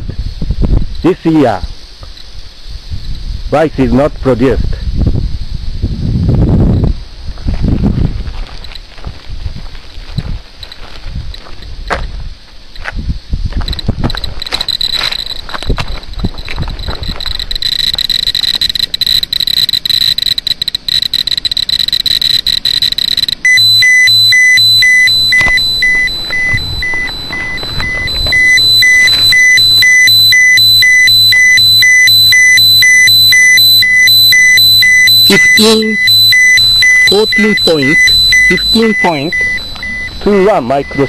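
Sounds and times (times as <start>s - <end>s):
radiation meter clicking: 13.6s - 41.0s
electronic alarm beeping: 13.7s - 41.0s
steady high tone: 14.5s - 41.0s.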